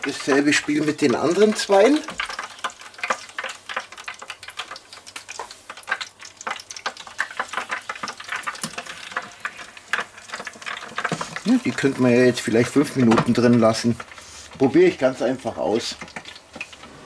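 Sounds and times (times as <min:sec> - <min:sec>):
fryer basket clicking and rattling: 0:00.0 - 0:09.3, 0:09.9 - 0:16.8.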